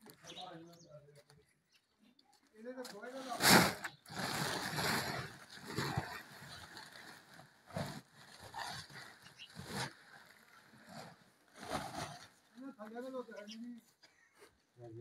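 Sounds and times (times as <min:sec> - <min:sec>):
plastic sheet rustling and crackling: 0:02.7 - 0:13.8.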